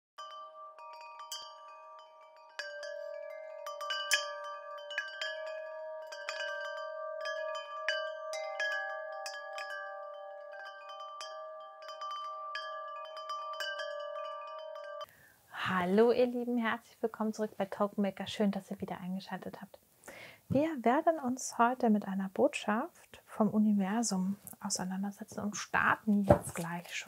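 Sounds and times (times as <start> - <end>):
wind chimes ringing: 0.2 - 15.1.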